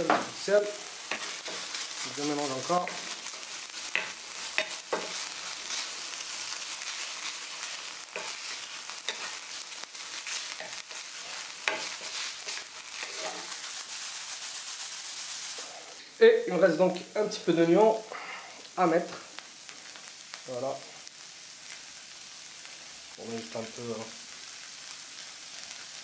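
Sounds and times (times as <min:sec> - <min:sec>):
meat sizzling in a frying pan: 0:00.0 - 0:26.0
spatula scraping and tapping pan: 0:01.1 - 0:01.8, 0:02.8 - 0:05.8, 0:08.1 - 0:09.4, 0:10.3 - 0:13.5.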